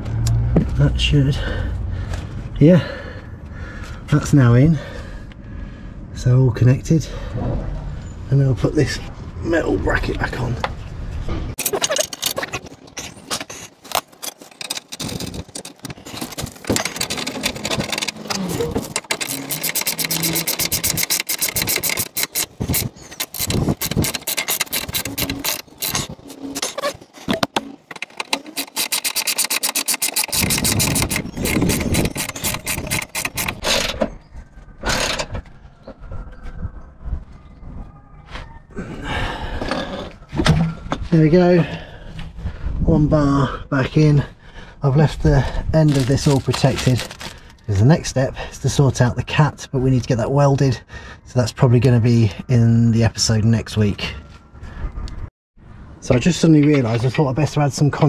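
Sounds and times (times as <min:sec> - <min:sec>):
metal scrapes and knocks: 0:10.6 - 0:34.2
socket ratchet clicking: 0:18.9 - 0:26.1, 0:28.0 - 0:33.8.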